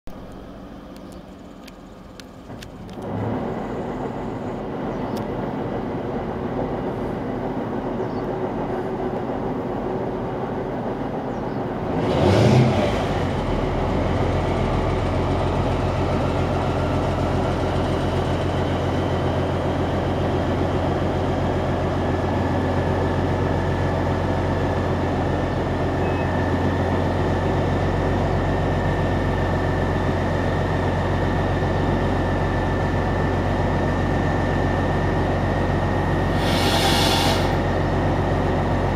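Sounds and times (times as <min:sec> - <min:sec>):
diesel engine starting and idling: 0:00.1 - 0:38.9
thin high whine: 0:36.2 - 0:37.8.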